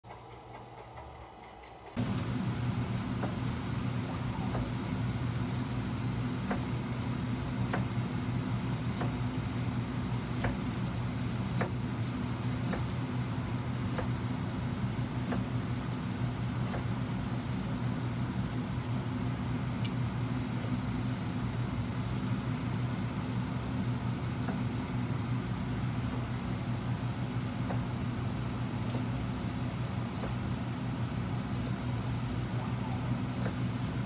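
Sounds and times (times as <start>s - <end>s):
low machine hum: 0.0s - 34.0s
knife slicing vegetable: 12.6s - 13.0s, 13.8s - 14.2s, 15.0s - 15.6s, 16.6s - 17.0s.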